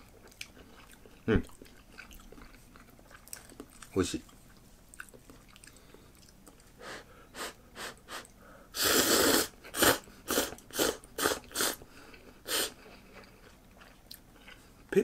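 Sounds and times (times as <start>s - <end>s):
person slurping noodles: 8.8s - 11.8s, 12.5s - 12.8s.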